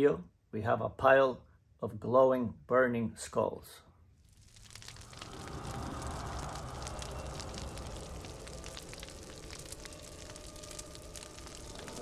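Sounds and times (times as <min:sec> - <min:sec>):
crackling fire: 0:04.2 - 0:12.0.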